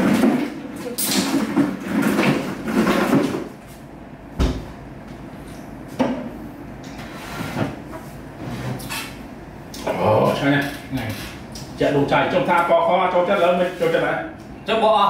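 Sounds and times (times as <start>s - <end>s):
knocks from kitchen work: 4.4s - 4.7s.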